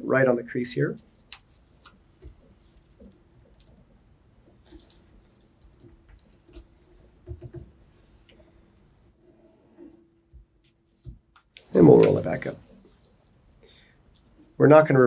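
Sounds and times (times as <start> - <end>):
paper rustling: 10.9 - 14.4.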